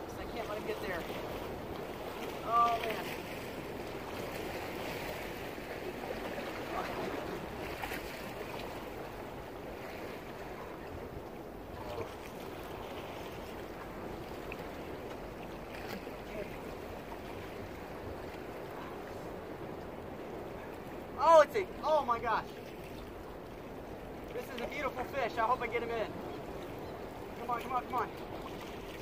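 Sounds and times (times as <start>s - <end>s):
sea water washing against rocks: 0.0s - 10.7s.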